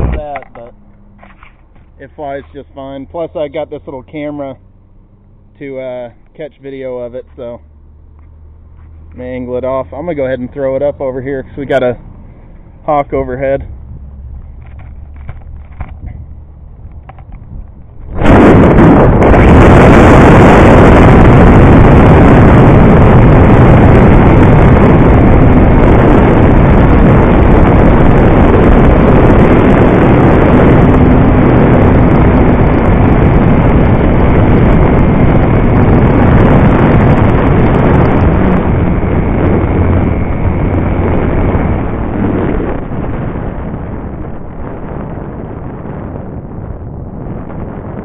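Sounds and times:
wind rush on microphone: 0.0s - 48.0s.

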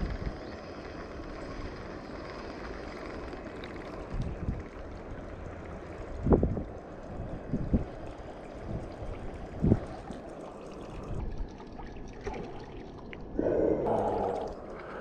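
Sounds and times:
lure gurgling across water: 7.7s - 15.0s.

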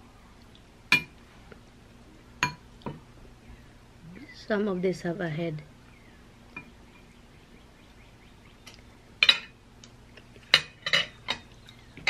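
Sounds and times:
cutlery clinking on glass: 10.5s - 11.4s.

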